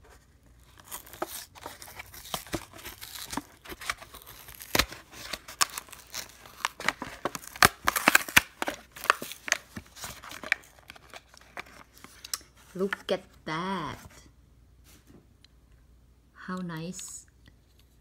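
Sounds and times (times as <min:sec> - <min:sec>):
plastic blister pack tearing: 0:00.6 - 0:12.4.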